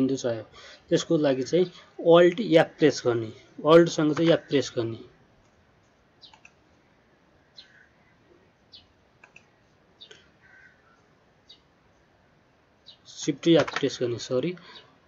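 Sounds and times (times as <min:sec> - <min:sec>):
keyboard and mouse clicks: 0:05.4 - 0:06.7, 0:09.2 - 0:09.5, 0:13.6 - 0:13.9.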